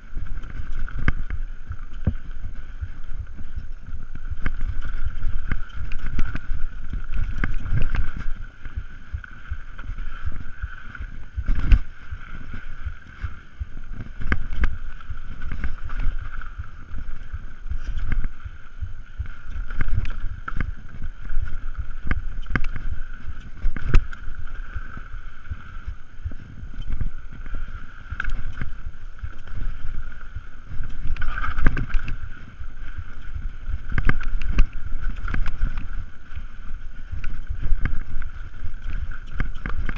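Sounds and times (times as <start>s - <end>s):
bike tyres rumbling over dirt: 0.0s - 39.9s
wind on microphone: 0.0s - 39.9s
bike knocks and rattles: 17.8s - 22.9s.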